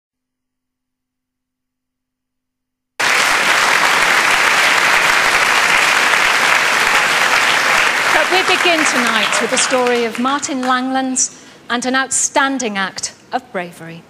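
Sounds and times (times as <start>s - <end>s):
audience applause: 3.0s - 10.9s.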